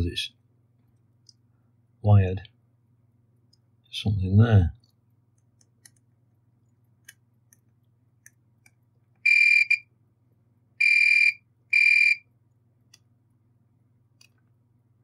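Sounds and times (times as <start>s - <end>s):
multimeter continuity beeps: 9.2s - 9.9s, 10.8s - 12.3s.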